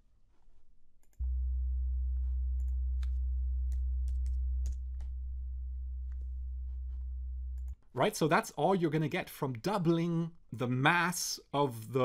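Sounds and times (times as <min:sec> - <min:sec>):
low sine test tone: 0:01.1 - 0:07.8.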